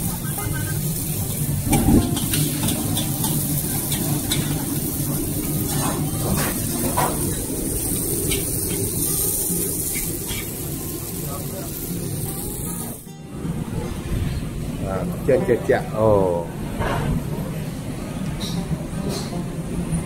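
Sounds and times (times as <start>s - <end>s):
noodles sizzling in a wok: 0.0s - 13.1s.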